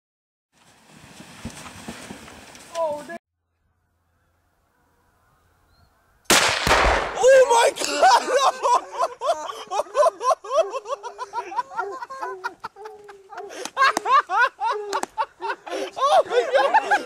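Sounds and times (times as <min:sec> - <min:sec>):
people laughing hard: 0:07.5 - 0:17.0.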